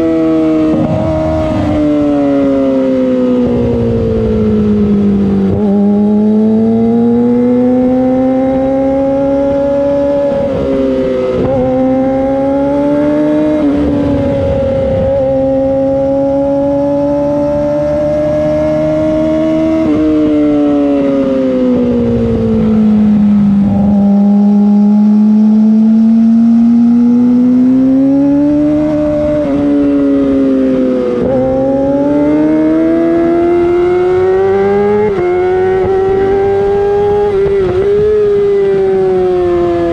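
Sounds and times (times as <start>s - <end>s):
motorcycle engine revving through upshifts: 0.0s - 39.9s.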